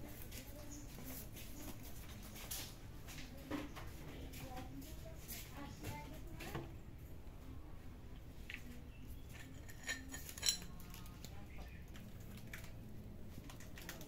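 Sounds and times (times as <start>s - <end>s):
dishes clinking: 9.2s - 10.9s.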